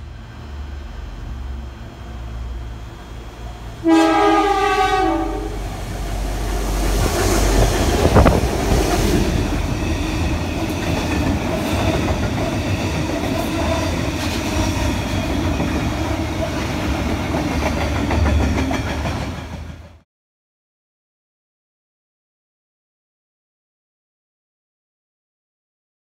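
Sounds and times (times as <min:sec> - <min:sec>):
locomotive engine rumble: 0:00.0 - 0:19.9
train wheels on rail joints: 0:00.0 - 0:20.0
train horn: 0:03.8 - 0:05.8.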